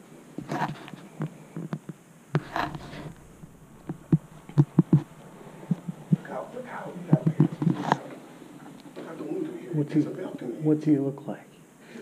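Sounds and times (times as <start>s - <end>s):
footsteps on stairs: 2.4s - 7.8s.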